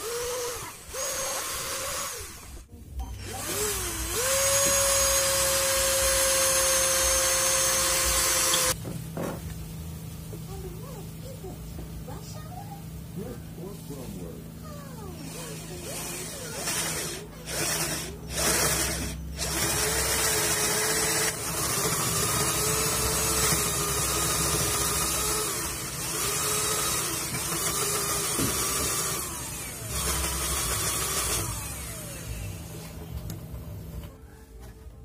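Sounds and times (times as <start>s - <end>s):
cordless drill boring into wood: 0.0s - 2.6s, 3.2s - 8.8s, 15.4s - 32.6s.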